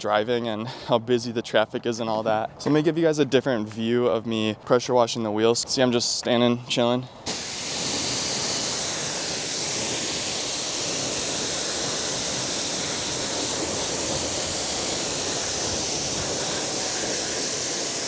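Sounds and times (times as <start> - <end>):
pressure washer spraying: 7.2 - 18.0.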